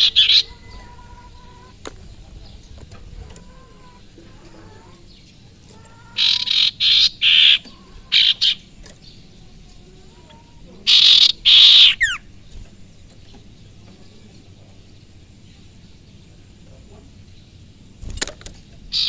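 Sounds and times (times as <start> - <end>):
songbird harsh scratchy calls: 0.0 - 1.8, 3.4 - 9.2, 10.8 - 12.4.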